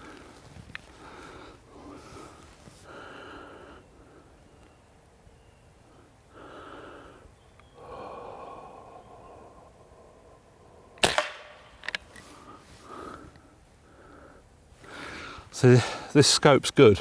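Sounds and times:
soft breathing: 0.0 - 4.6, 5.8 - 11.0, 12.0 - 16.1
air rifle shot: 11.0 - 11.7.

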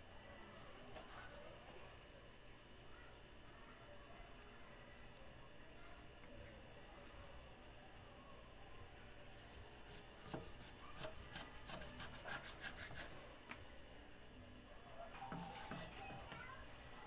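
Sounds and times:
crickets chirring: 0.0 - 17.0
knife chopping on wooden block: 10.3 - 13.1, 15.3 - 16.3.

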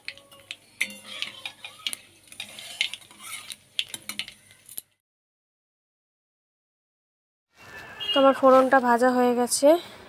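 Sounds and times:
metal spatula scraping a pan: 0.0 - 4.8
spices sizzling in hot oil: 0.0 - 4.9.

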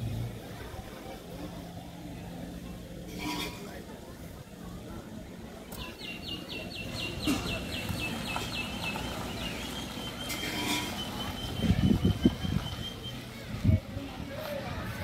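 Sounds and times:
vehicle moving: 6.6 - 15.0.

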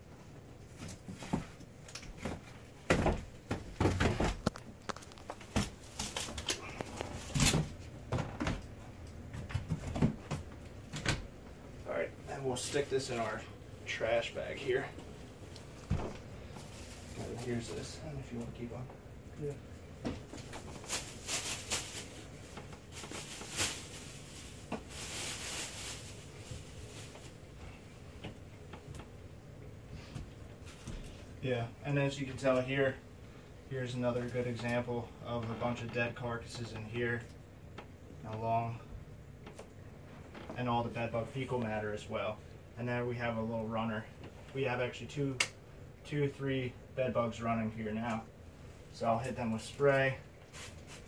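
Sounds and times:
plastic bag rustling: 0.7 - 8.8, 15.7 - 18.6, 20.0 - 28.2, 49.5 - 51.0.

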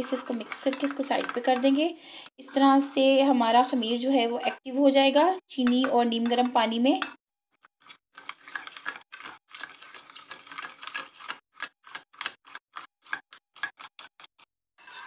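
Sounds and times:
spoon stirring in bowl: 0.0 - 14.2.

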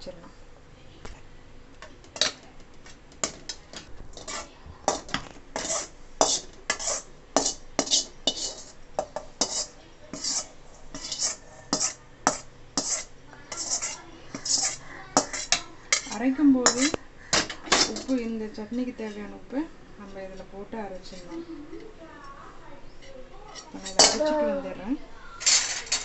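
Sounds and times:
metal ladle clinking and scraping: 4.2 - 17.0.

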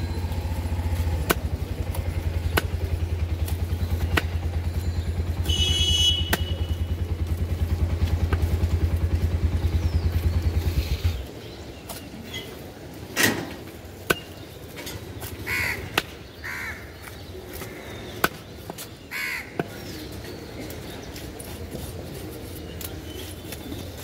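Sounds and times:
knife chopping fish on wood: 2.4 - 2.8
crow cawing: 15.5 - 16.9, 19.1 - 19.6.

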